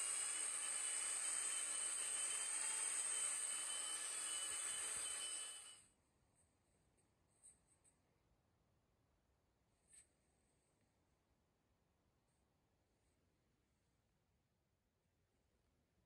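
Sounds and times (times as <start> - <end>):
power tool whining with dust extractor: 0.0 - 5.8.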